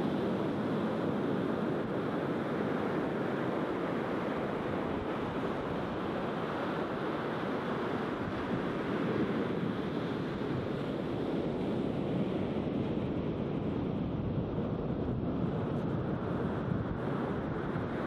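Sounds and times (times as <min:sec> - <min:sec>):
waves breaking on beach: 0:00.0 - 0:13.9.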